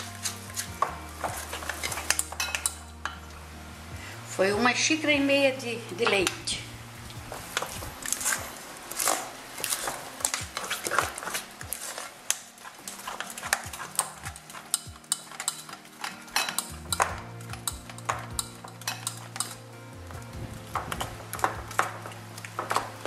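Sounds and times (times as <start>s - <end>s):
utensil stirring batter in glass bowl: 0.0s - 3.1s, 7.4s - 19.6s.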